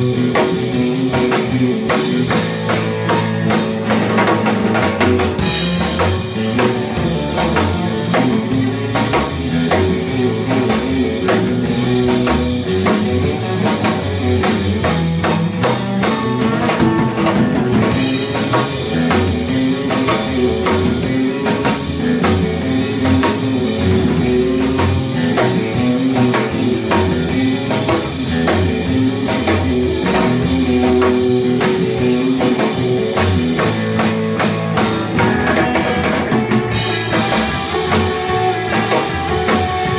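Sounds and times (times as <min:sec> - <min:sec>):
drum kit steady beat: 0:00.0 - 0:39.9
electric guitars playing: 0:00.0 - 0:39.9.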